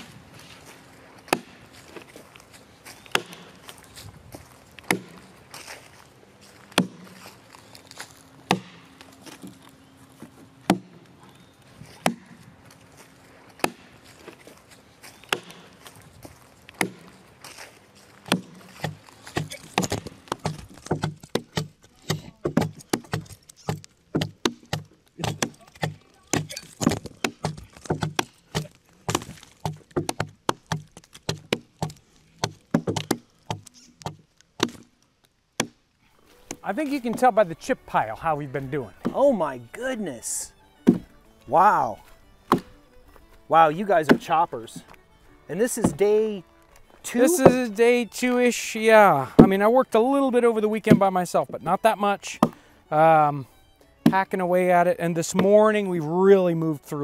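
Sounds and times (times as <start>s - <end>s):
axe chopping into log: 1.2s - 2.2s, 3.0s - 3.7s, 4.8s - 5.3s, 6.7s - 7.2s, 8.4s - 8.8s, 10.6s - 11.0s, 11.9s - 12.4s, 13.6s - 14.4s, 15.2s - 15.8s, 16.8s - 17.2s, 18.2s - 34.9s, 35.6s - 35.8s, 40.8s - 41.1s, 42.4s - 42.8s, 44.1s - 44.9s, 45.8s - 46.1s, 52.4s - 52.6s.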